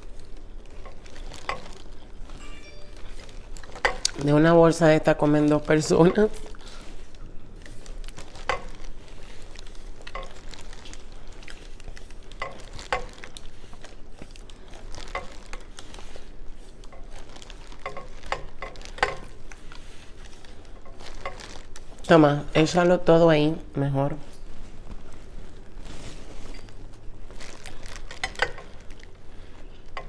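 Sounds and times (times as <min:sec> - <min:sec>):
plastic bag crinkling: 0:00.0 - 0:22.8, 0:24.4 - 0:30.0
wet squishes of shellfish: 0:05.4 - 0:22.1.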